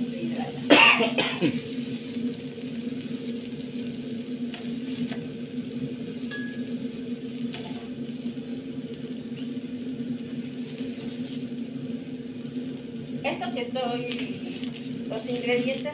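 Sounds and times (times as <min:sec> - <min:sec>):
steady low hum: 0:00.0 - 0:15.9
metallic ring: 0:06.3 - 0:06.7.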